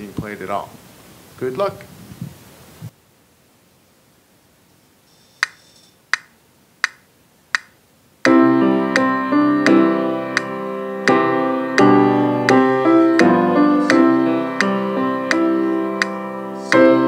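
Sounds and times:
metronome clicking: 5.4s - 8.4s
piano sustained chords: 8.3s - 17.0s.

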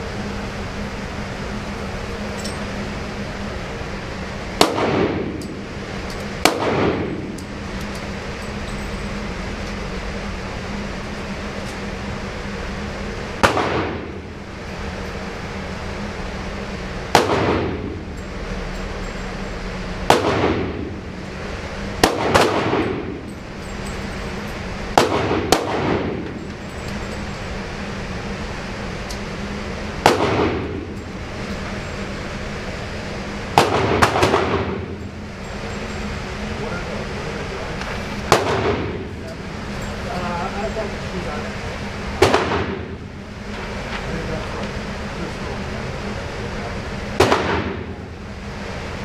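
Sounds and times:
ventilation hum: 0.0s - 49.0s
gunshots echoing indoors: 4.6s - 7.9s, 13.4s - 14.2s, 17.0s - 18.0s, 20.1s - 21.0s, 22.0s - 23.2s, 24.9s - 26.4s, 30.0s - 31.0s, 33.5s - 35.0s, 38.2s - 39.1s, 42.2s - 43.0s, 47.2s - 48.1s.

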